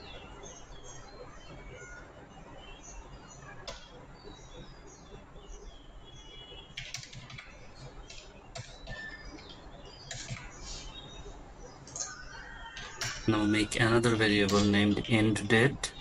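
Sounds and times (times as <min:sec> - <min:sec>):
faint high chirps: 0:00.0 - 0:16.0
computer keyboard clicks: 0:06.8 - 0:10.6.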